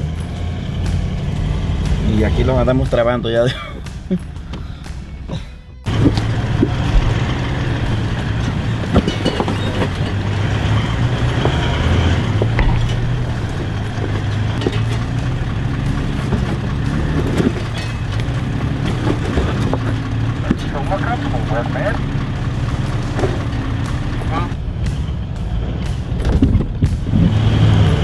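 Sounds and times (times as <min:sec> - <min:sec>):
truck engine humming: 0:00.0 - 0:28.0
tyres and suspension clunking: 0:00.0 - 0:28.0.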